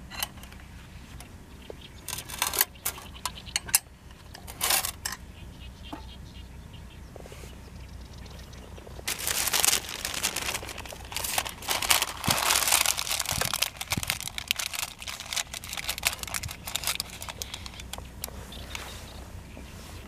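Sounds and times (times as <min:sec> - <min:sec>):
baking paper crinkling: 0:09.0 - 0:18.8.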